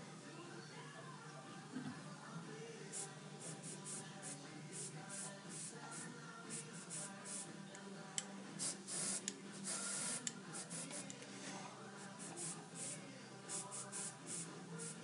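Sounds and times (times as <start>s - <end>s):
airbrush spraying hiss: 2.9s - 7.6s, 8.6s - 11.1s, 12.0s - 15.0s.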